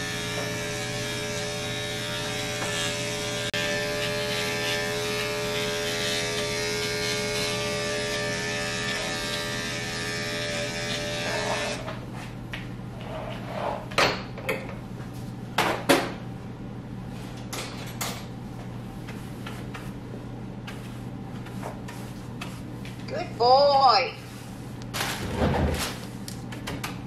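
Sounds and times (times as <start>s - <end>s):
electric clipper humming: 0.0s - 11.9s.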